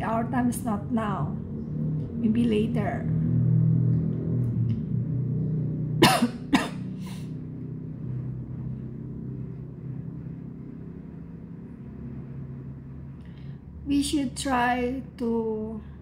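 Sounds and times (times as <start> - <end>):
steady low hum: 0.0 - 16.0
woman coughing: 6.0 - 6.9.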